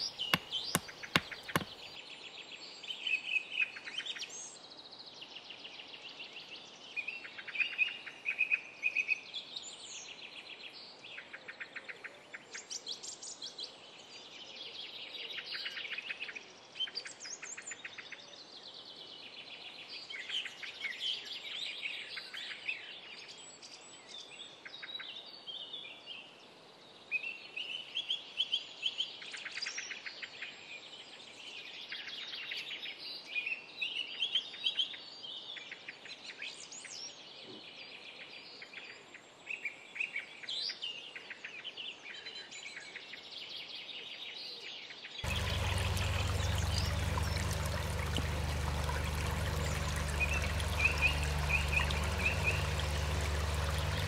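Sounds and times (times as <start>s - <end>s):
songbirds chirping and trilling: 44.9s - 54.0s
faint steady background noise: 45.2s - 54.0s.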